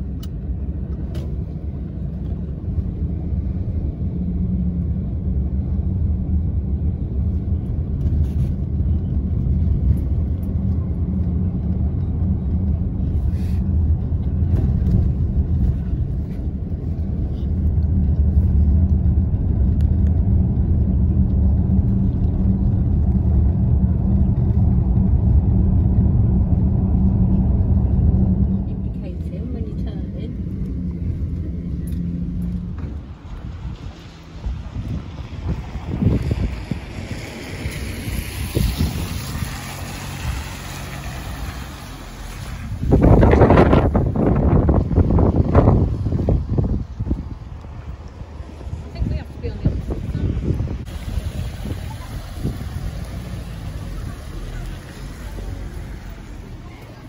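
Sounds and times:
vehicle rumble from inside cabin: 0:00.0 - 0:57.0
tyre hiss on wet road: 0:36.4 - 0:42.8, 0:50.8 - 0:57.0.

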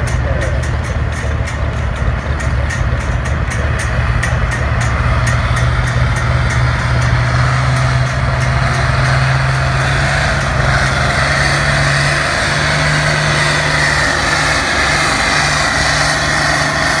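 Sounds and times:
diesel tractor engine under load: 0:00.0 - 0:17.0.

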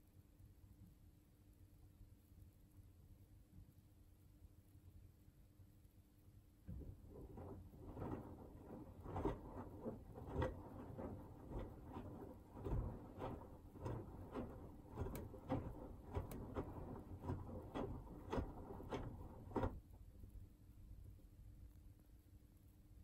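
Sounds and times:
laundry sloshing in washing machine drum: 0:06.7 - 0:19.9
low motor rumble: 0:06.7 - 0:20.0.

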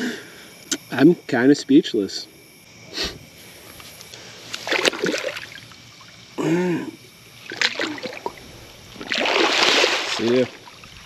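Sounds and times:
splashing in shallow water and mud: 0:04.6 - 0:05.6, 0:07.5 - 0:11.0
man grunting: 0:06.4 - 0:07.0.

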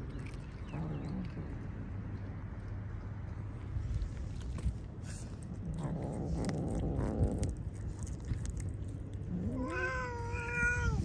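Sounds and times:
kitten purring: 0:03.9 - 0:11.0.

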